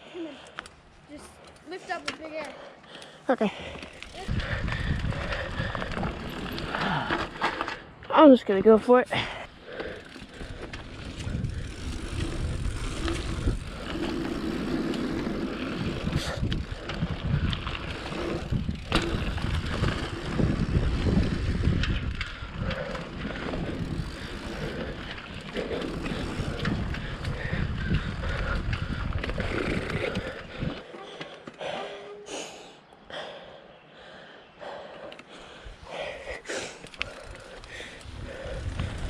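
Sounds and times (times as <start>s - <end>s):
bike tyres rolling on dirt: 3.0s - 31.7s, 34.7s - 39.0s
wind rumbling on microphone: 4.0s - 7.4s, 9.9s - 30.8s, 37.0s - 39.0s.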